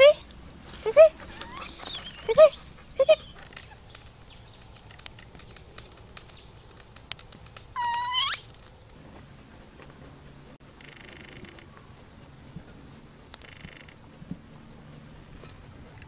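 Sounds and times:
high animal calls: 1.2 - 3.8, 7.8 - 8.5, 10.8 - 11.7.

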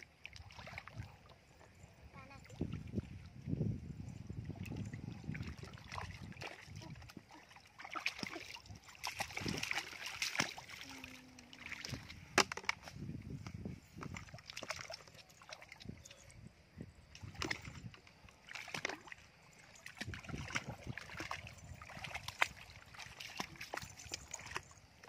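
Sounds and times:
legs wading through muddy water: 0.0 - 16.4, 17.0 - 25.0.

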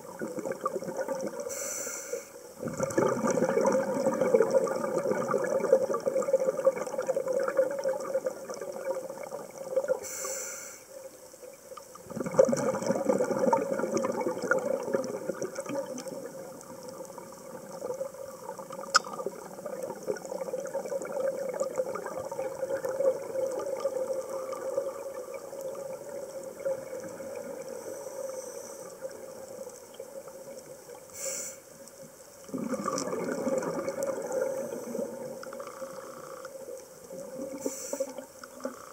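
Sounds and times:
exhaled bubbles rushing: 0.0 - 1.5, 2.6 - 10.0, 12.0 - 28.0, 32.5 - 36.4
regulator inhale hiss: 1.5 - 2.6, 10.0 - 11.0, 27.7 - 29.1, 31.1 - 31.8, 34.4 - 35.3, 37.5 - 38.9.

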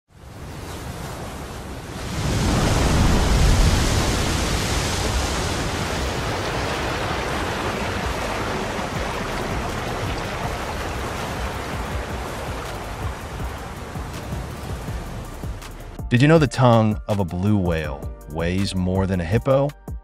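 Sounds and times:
sea water churning and rushing: 0.1 - 16.0.

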